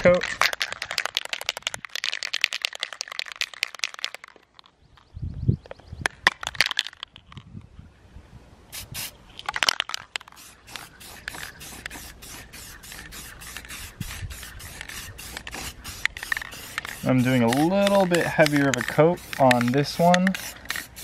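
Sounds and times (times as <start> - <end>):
aerosol spray can hissing: 8.7 - 9.2, 10.2 - 21.0.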